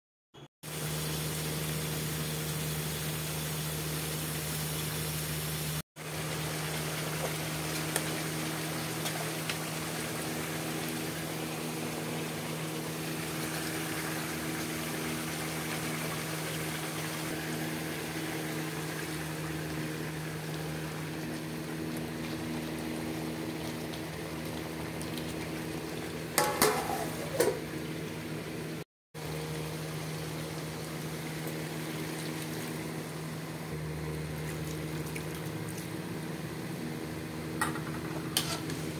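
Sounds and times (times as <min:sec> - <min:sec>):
curry sizzling in a pot: 0:00.7 - 0:38.9
constant low hum: 0:00.8 - 0:38.9
metal spoon scraping a pot: 0:38.2 - 0:38.9.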